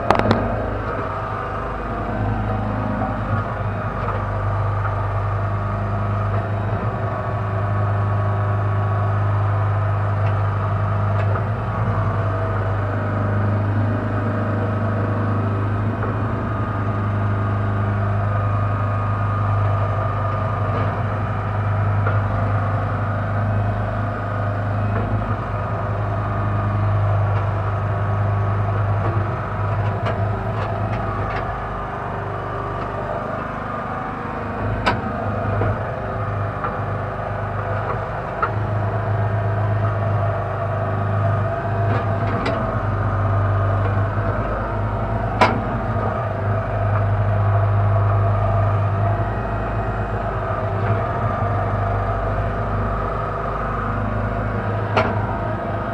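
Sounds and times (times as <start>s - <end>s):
backhoe engine droning: 0.0s - 55.9s
sharp clicks or knocks: 0.1s - 0.6s.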